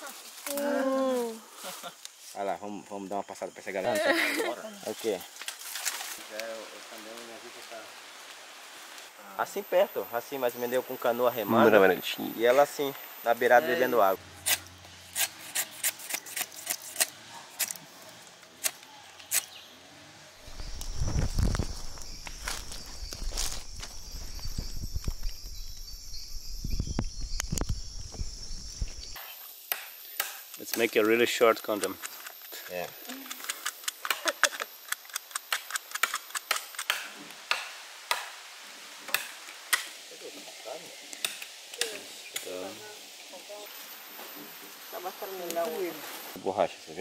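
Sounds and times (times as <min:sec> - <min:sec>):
faint high steady tone: 0:09.2 - 0:14.2
knife scraping bark: 0:14.3 - 0:19.7.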